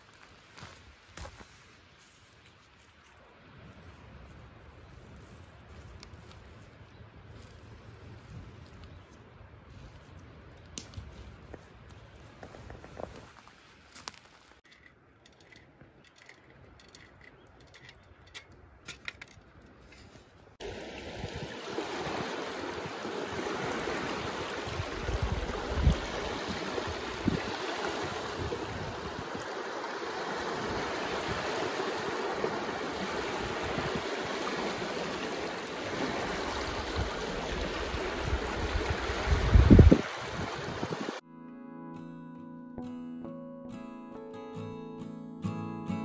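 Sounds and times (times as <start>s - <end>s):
rushing water: 20.6s - 41.2s.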